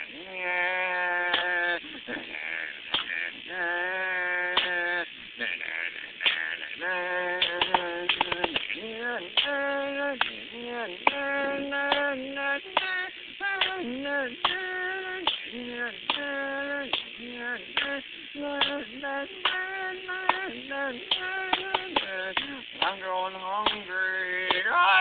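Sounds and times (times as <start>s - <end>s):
sharp clicks or claps: 2.9s - 3.2s, 7.4s - 8.7s, 9.4s - 9.6s, 11.9s - 12.1s, 13.6s - 13.8s, 14.4s - 14.6s, 15.2s - 15.5s, 16.1s - 16.3s, 18.6s - 18.8s, 21.1s - 23.0s.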